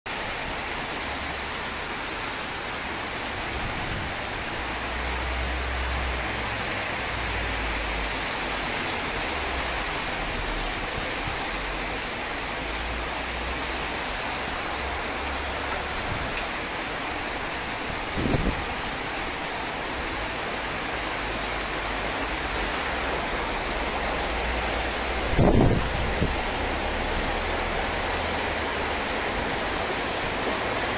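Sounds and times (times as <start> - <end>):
heavy rain hissing: 0.1 - 30.9
wind gusts buffeting microphone: 17.7 - 19.0, 24.9 - 26.7.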